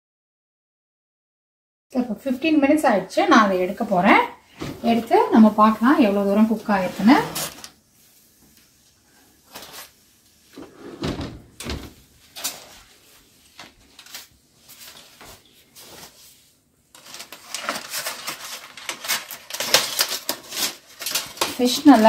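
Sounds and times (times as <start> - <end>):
aluminium foil crinkling: 12.3 - 16.3, 16.9 - 22.0.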